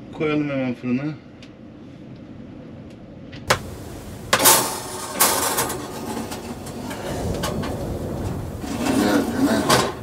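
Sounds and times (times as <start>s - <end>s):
metal tray scraping into oven: 4.3s - 10.0s.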